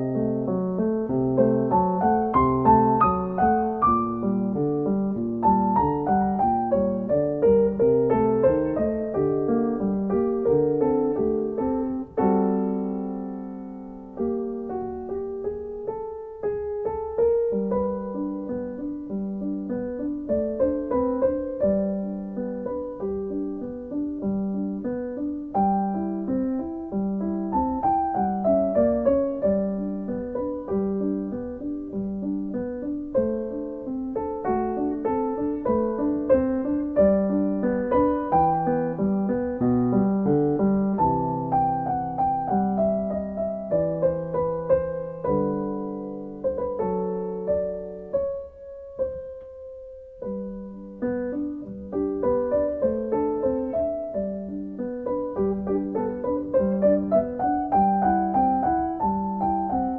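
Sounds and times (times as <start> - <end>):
solo piano piece: 0.0 - 59.9.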